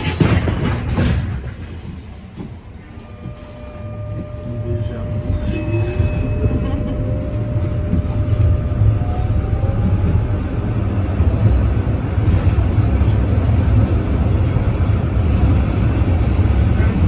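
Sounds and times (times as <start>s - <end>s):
tram wheels rumbling: 0.0s - 17.0s
traction motor whine: 3.0s - 11.6s.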